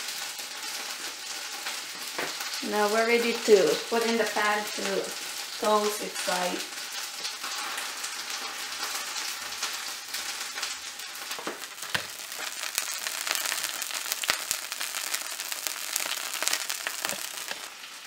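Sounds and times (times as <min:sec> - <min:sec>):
butter sizzling in a frying pan: 0:00.0 - 0:18.0.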